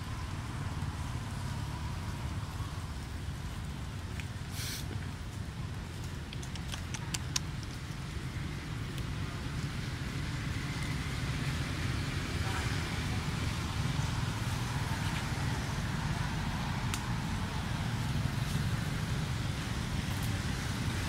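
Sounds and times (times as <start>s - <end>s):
low outdoor rumble: 0.0s - 21.0s
faint ticks: 6.0s - 7.8s
faint distant voices: 9.2s - 16.4s.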